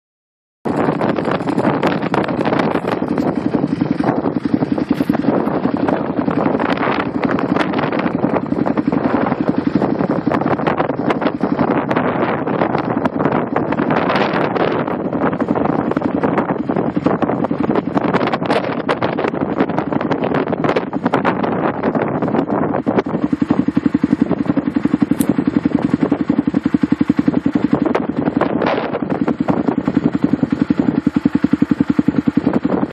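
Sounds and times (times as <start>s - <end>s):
rattles and clicks: 0.7s - 11.3s
engine working under load: 0.7s - 32.9s
wind buffeting microphone: 0.7s - 32.9s.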